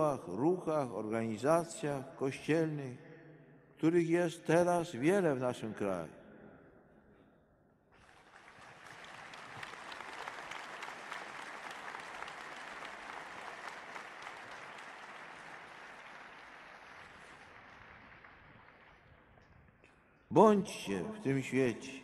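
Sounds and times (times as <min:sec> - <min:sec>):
large crowd applauding: 0:08.0 - 0:19.9.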